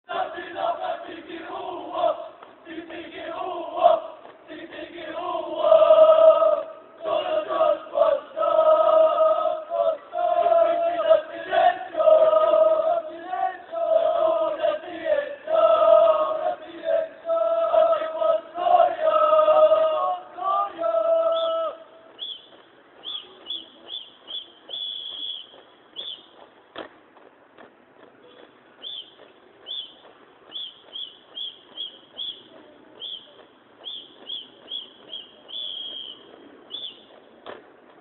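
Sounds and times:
voices chanting in unison: 0:00.1 - 0:22.0.

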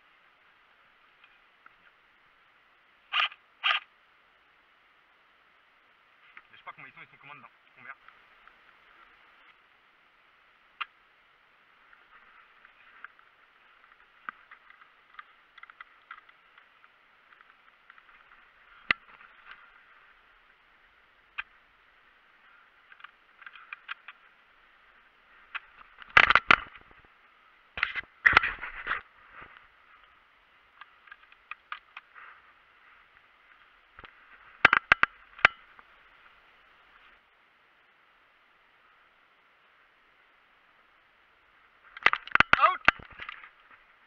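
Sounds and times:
dry leaves and twigs crackling: 0:06.1 - 0:37.3, 0:41.5 - 0:44.0.

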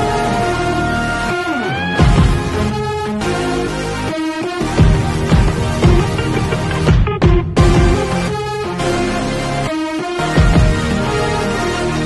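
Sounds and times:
background music with gliding tones: 0:00.0 - 0:12.0
deep bass hit: 0:04.8 - 0:08.4.

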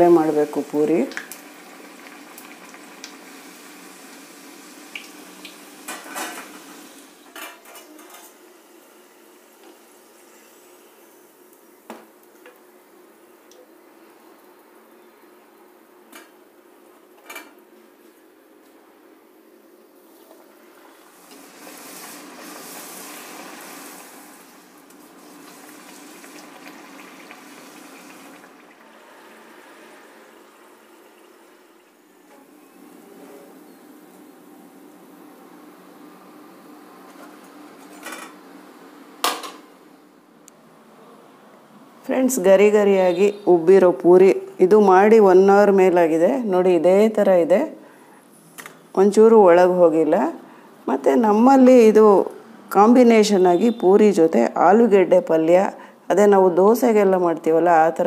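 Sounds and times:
oil sizzling: 0:00.0 - 0:13.1, 0:20.0 - 0:40.0.

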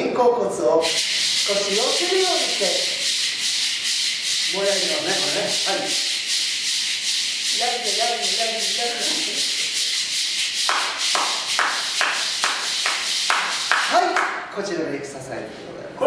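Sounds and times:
maracas shaking: 0:00.8 - 0:14.6
hand claps: 0:09.0 - 0:14.5.

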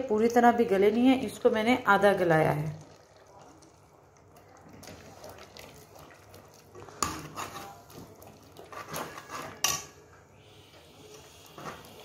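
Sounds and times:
spoon stirring thick food: 0:02.7 - 0:10.3
spoon clacking against pot: 0:02.8 - 0:10.0.

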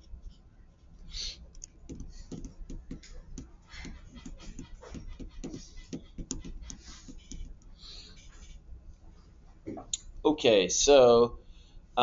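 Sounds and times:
pen writing and tapping on paper: 0:01.9 - 0:08.6.

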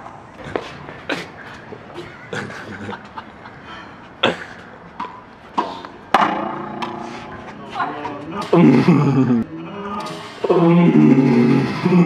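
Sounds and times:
racquet smacking ball: 0:05.0 - 0:08.3
ball hitting concrete wall: 0:05.0 - 0:08.5.

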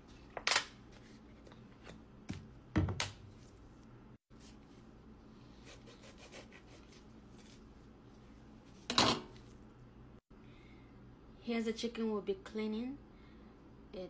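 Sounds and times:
knife sawing through lime: 0:05.6 - 0:07.5.

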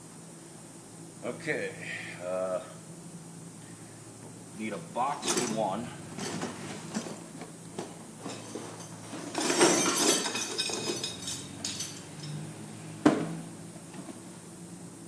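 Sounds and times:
rustling and clattering: 0:05.2 - 0:12.4
clinks and knocks of hard objects: 0:06.2 - 0:12.5.

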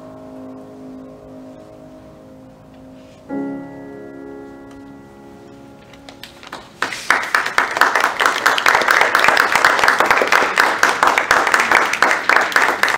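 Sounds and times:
grand piano chord: 0:00.0 - 0:07.4
audience applause: 0:06.3 - 0:12.9.

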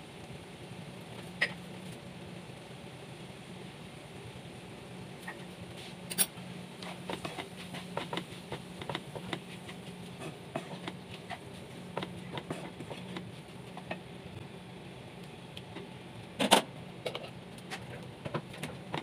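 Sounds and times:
steady low hum: 0:00.0 - 0:19.0
wooden spoon scraping pan: 0:06.8 - 0:13.9.

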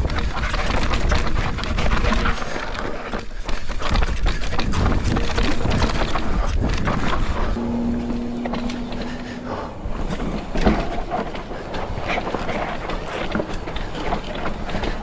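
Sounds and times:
bike rattling and knocking: 0:00.0 - 0:07.6, 0:09.9 - 0:15.0
steady hum: 0:07.6 - 0:11.8.

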